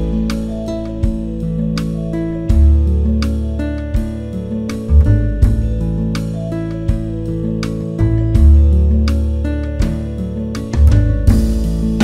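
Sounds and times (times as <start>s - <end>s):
guitar instrumental music: 0.0s - 12.0s.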